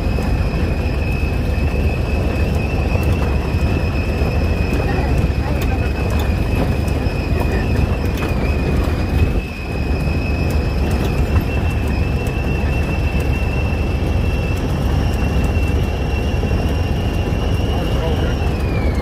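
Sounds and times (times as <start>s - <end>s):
engine and tyre rumble: 0.0s - 19.0s
high whine: 0.0s - 19.0s.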